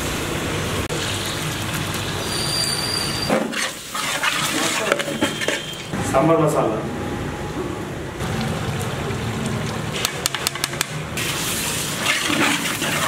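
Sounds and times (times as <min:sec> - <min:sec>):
vegetables sizzling: 0:00.0 - 0:05.0, 0:11.0 - 0:13.0
metal ladle stirring in pot: 0:11.2 - 0:13.0.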